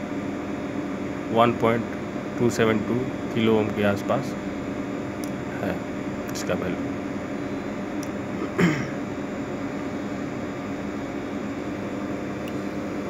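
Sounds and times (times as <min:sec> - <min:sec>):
background hum and hiss: 0:00.0 - 0:13.0.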